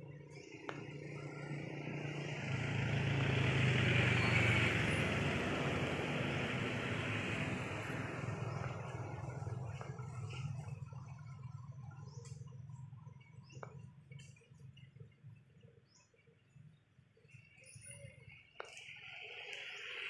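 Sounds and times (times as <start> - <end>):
motor vehicle passing by: 0.0 - 14.9.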